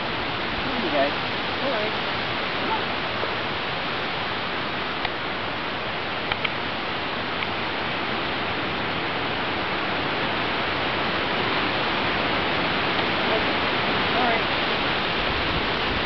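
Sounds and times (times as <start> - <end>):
faint clicks: 6.2 - 6.6.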